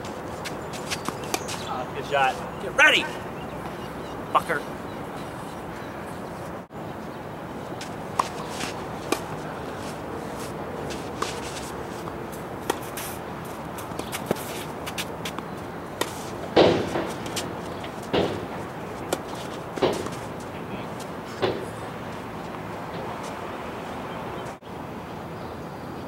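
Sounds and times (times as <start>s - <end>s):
tennis ball bounces: 0.0s - 1.7s, 7.8s - 23.4s
steady background noise: 0.0s - 26.0s
tennis racket strikes: 16.0s - 20.3s.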